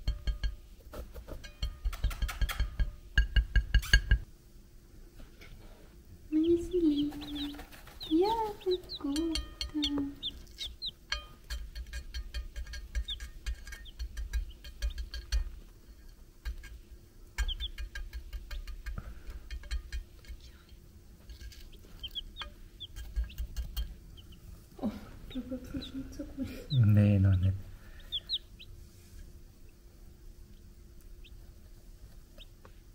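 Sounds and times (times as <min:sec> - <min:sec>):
clicks and taps: 0:01.2 - 0:04.2, 0:08.8 - 0:16.8, 0:17.4 - 0:20.4, 0:21.2 - 0:24.0
chicks peeping: 0:06.3 - 0:15.8, 0:17.3 - 0:20.2, 0:21.2 - 0:28.9, 0:29.6 - 0:32.8.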